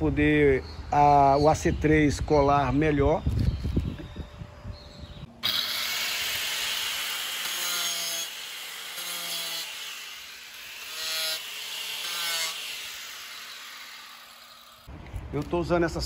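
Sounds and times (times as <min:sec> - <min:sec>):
power cutter grinding: 0:05.4 - 0:14.9.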